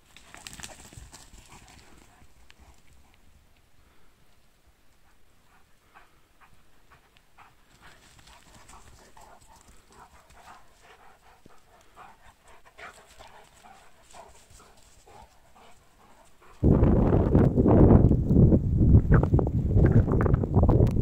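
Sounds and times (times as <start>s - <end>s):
dogs play-fighting mouth sounds: 0.1s - 3.2s, 6.4s - 16.7s
wind noise on microphone: 16.4s - 21.0s.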